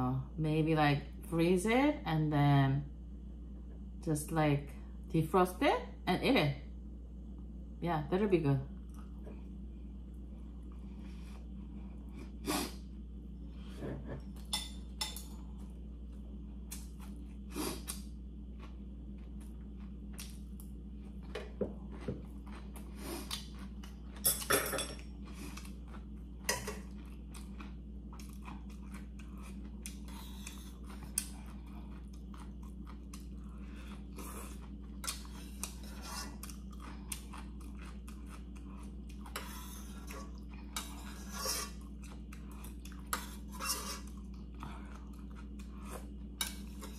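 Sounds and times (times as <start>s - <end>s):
low hum: 0.0s - 46.9s
person chewing: 16.6s - 24.3s, 25.0s - 46.9s.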